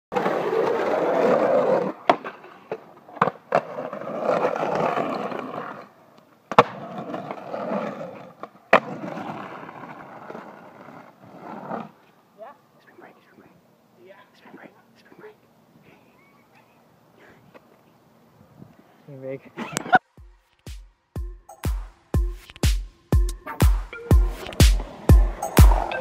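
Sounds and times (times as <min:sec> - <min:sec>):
skateboard wheels rolling on concrete: 0:00.1 - 0:20.7, 0:23.4 - 0:26.0
skateboard slapping down: 0:00.2 - 0:05.9, 0:06.5 - 0:11.9, 0:24.4 - 0:26.0
skateboard clacks: 0:00.2 - 0:11.1, 0:24.3 - 0:26.0.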